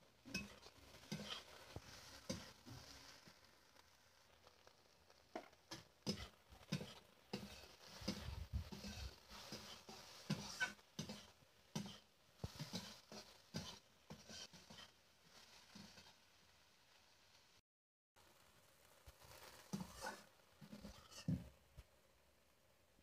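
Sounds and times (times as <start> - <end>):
metal spatula scraping a pan: 0.0 - 4.7, 5.3 - 16.2, 19.2 - 21.5.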